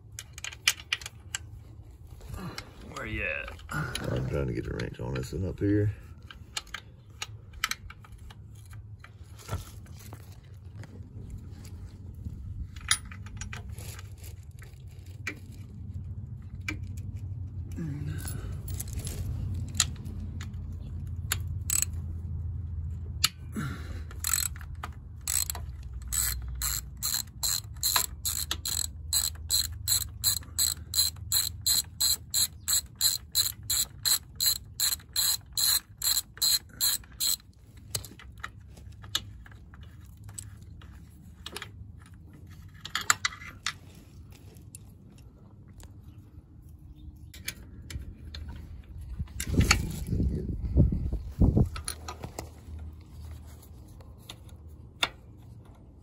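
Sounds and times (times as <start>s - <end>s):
socket ratchet clicking: 21.2s - 22.0s, 24.1s - 38.1s.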